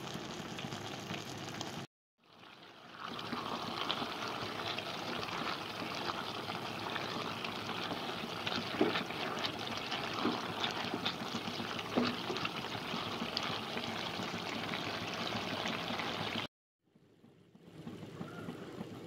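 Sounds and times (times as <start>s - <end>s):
food sizzling in a frying pan: 0.0s - 16.5s
spatula scraping a pan: 3.0s - 15.7s.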